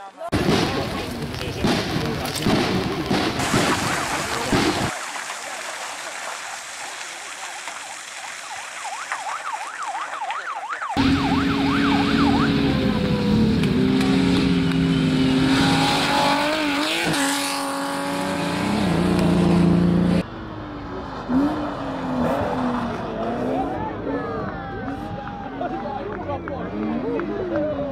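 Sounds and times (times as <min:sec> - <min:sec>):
distant car engine: 0:09.0 - 0:25.6
rally car engine revving and passing: 0:11.0 - 0:24.4.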